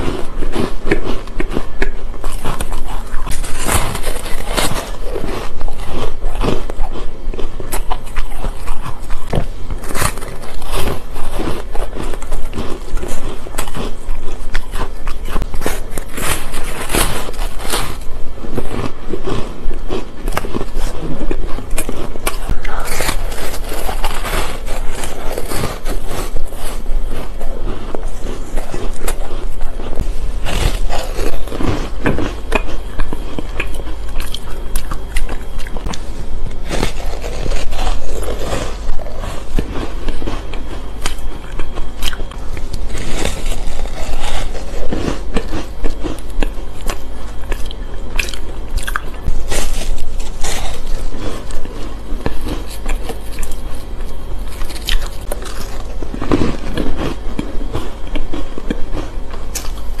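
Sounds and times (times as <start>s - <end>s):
crunching ice between teeth: 0.0s - 60.0s.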